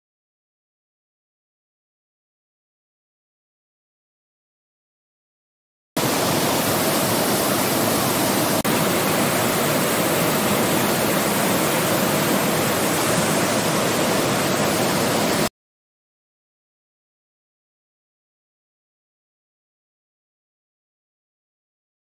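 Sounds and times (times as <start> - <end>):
river water rushing: 6.0 - 15.5.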